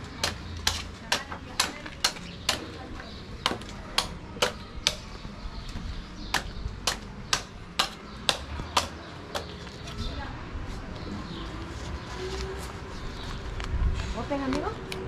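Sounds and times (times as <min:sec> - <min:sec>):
machete chopping coconut husk: 0:00.2 - 0:02.8, 0:03.4 - 0:05.1, 0:06.3 - 0:09.6.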